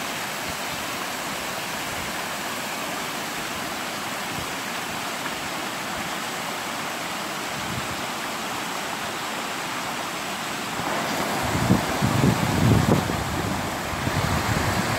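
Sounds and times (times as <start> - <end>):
river water pouring over weir: 0.0 - 14.9
wind buffeting microphone: 10.8 - 14.9.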